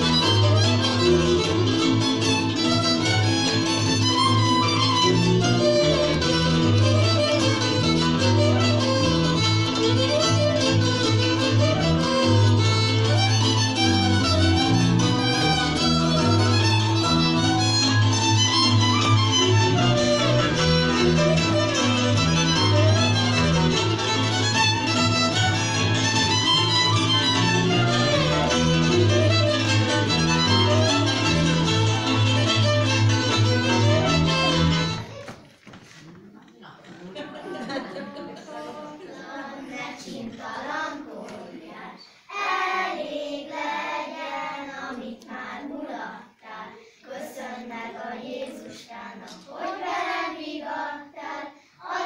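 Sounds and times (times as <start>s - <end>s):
pulsing string bass: 0.0s - 35.1s
folk dance music with fiddles: 0.0s - 35.4s
children singing: 38.4s - 52.0s.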